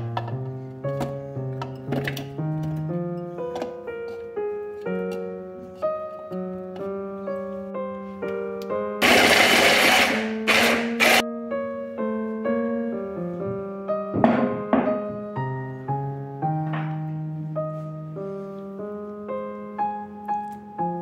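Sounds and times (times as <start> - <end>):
piano background music: 0.0 - 21.0
hand blender chopper pulsing: 9.0 - 11.2.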